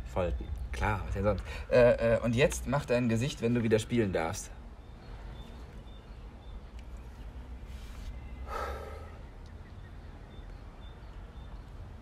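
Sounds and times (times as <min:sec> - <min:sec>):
steady low rumble: 0:00.0 - 0:12.0
man breathing: 0:07.7 - 0:09.3
man gasping: 0:08.5 - 0:09.2.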